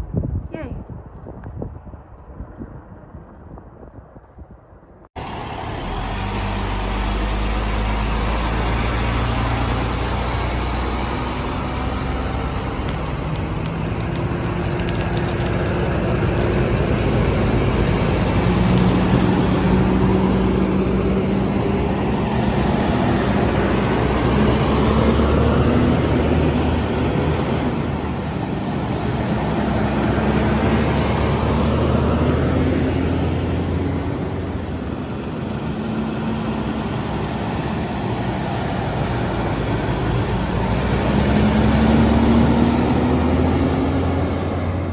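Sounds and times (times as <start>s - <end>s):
fire engines driving: 5.1s - 44.9s.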